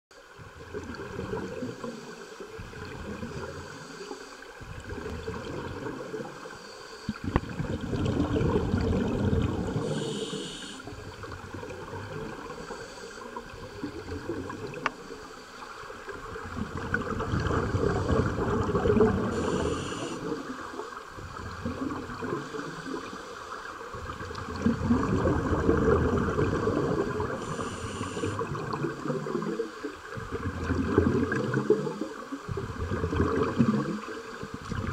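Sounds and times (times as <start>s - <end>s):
underwater exhaled bubbles gurgling: 0.2s - 34.9s
regulator inhalation hiss: 9.8s - 11.2s, 12.5s - 13.9s, 19.2s - 20.5s, 27.3s - 28.5s.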